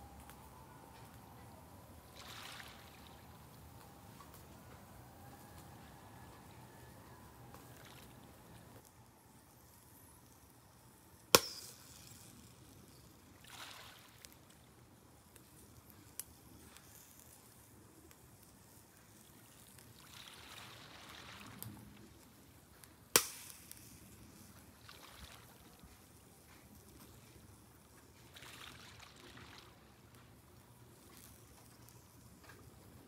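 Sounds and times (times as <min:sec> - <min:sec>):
ocean waves: 0:02.1 - 0:03.6, 0:24.8 - 0:25.7, 0:28.3 - 0:30.0
charcoal cracking sharply: 0:23.1 - 0:24.0.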